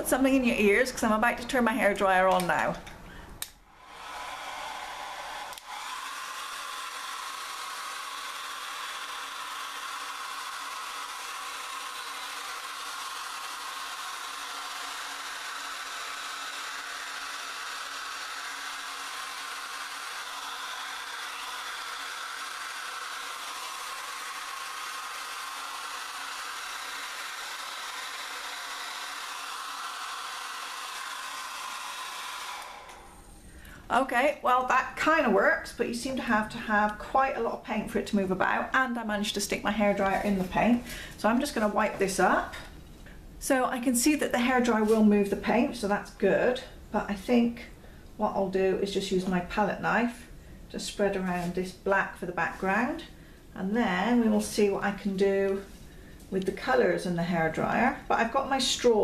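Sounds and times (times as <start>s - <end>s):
hair dryer running: 3.4s - 33.9s.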